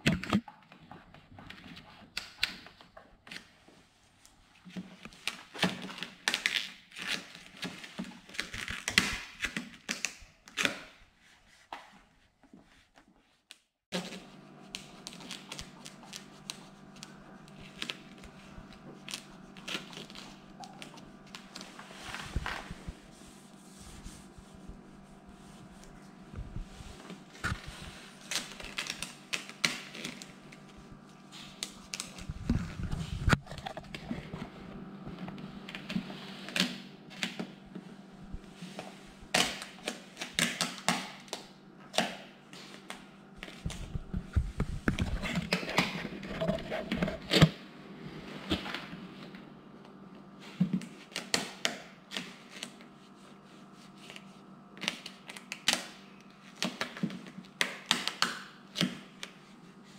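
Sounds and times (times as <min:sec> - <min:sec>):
vinyl film clicking and crinkling: 0:14.0 - 0:22.8, 0:27.0 - 0:37.4.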